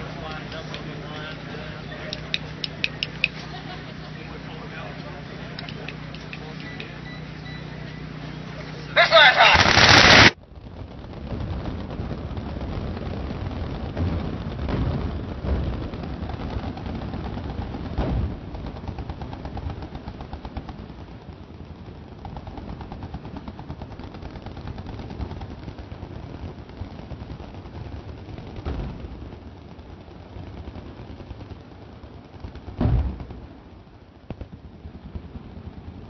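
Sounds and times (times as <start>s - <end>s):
machine guns firing: 0.0s - 10.4s, 14.0s - 29.4s
very loud blast: 0.0s - 10.4s, 32.8s - 33.5s
heavy booms: 0.0s - 36.0s.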